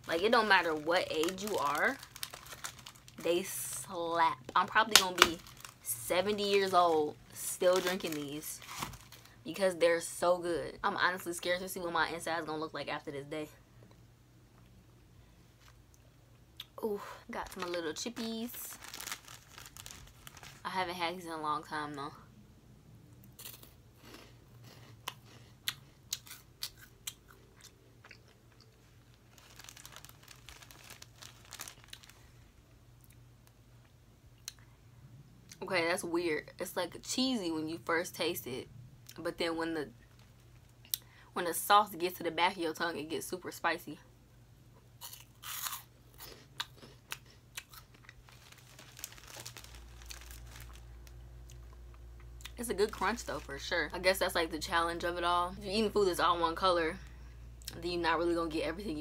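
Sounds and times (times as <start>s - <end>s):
plastic bag crinkling: 0.0s - 9.4s, 17.0s - 20.9s, 28.2s - 32.4s, 40.0s - 40.7s, 45.0s - 51.8s, 52.4s - 54.3s
crunchy snack being chewed: 23.3s - 32.2s, 45.0s - 51.8s.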